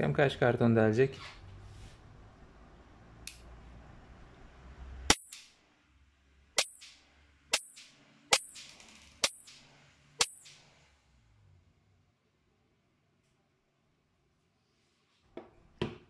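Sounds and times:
air pistol shots: 6.6s - 10.7s.

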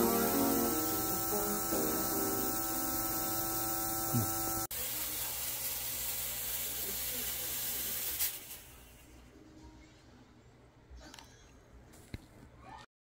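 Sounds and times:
steady hum: 0.0s - 4.7s
fogger spraying mist: 0.0s - 9.1s.

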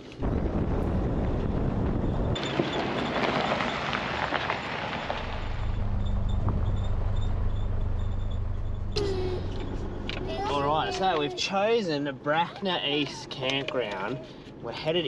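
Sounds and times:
tyres on gravel: 0.0s - 15.0s
stones ticking: 2.1s - 8.4s
low engine drone: 5.1s - 11.0s.

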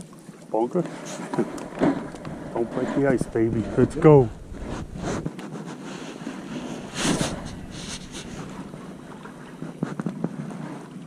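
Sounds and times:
waves lapping against hull: 0.0s - 11.0s
wind buffeting microphone: 1.2s - 5.4s, 6.0s - 10.4s.

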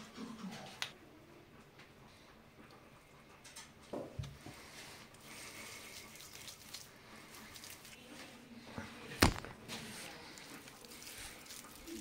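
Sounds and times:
hands squelching on raw chicken: 5.2s - 8.0s, 9.2s - 12.0s.

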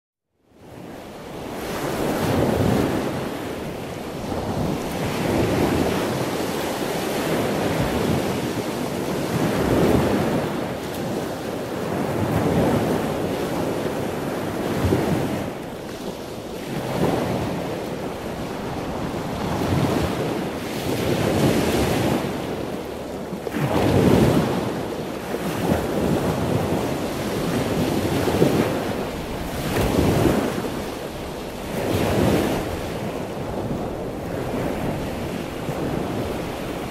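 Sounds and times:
wind buffeting microphone: 0.6s - 36.9s.

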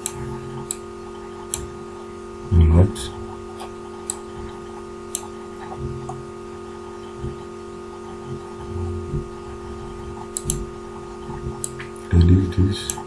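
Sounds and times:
computer mouse clicks: 0.0s - 0.8s, 5.1s - 6.2s, 10.2s - 10.7s
steady electrical hum: 0.0s - 13.0s
soft low thumps: 8.2s - 11.7s.

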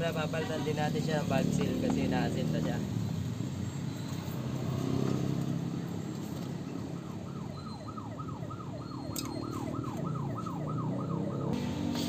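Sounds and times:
siren whooping: 6.5s - 11.6s.

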